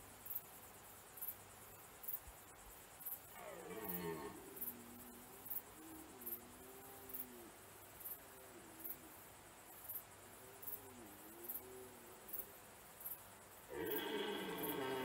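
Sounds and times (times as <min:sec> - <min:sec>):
high insect chirp: 0:00.0 - 0:15.0
deer stags roaring: 0:03.4 - 0:05.1, 0:13.7 - 0:15.0.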